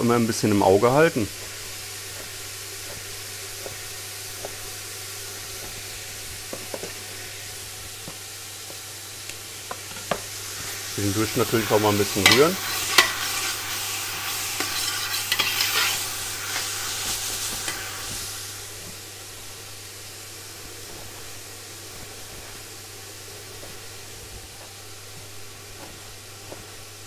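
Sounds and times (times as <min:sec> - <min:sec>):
onions sizzling in oil: 0:00.0 - 0:27.0
metal spatula scraping a pot: 0:12.2 - 0:16.7.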